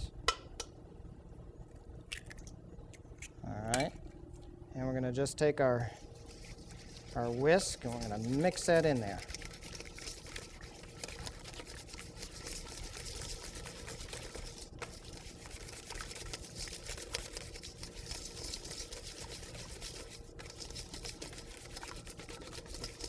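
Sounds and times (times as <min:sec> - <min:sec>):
wet sloshing: 0:05.8 - 0:23.0
whisk ticking against bowl: 0:06.2 - 0:23.0.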